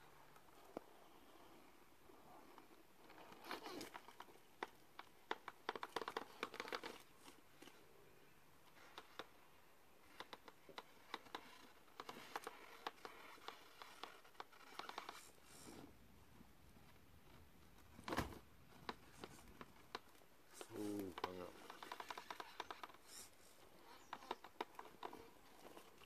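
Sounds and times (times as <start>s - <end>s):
toy car tyres crunching over rock: 18.0s - 26.0s.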